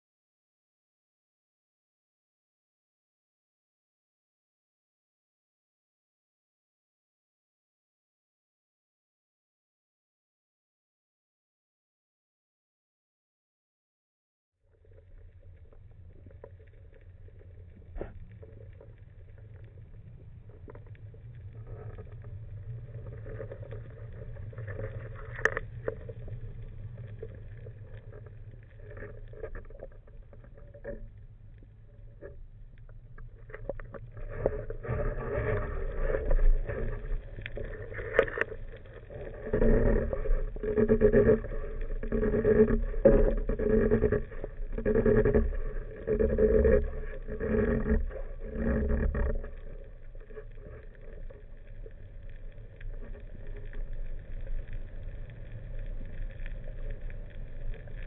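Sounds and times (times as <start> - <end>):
low rumble of water: 14.6 - 58.0
boat engine underwater hum: 14.7 - 58.0.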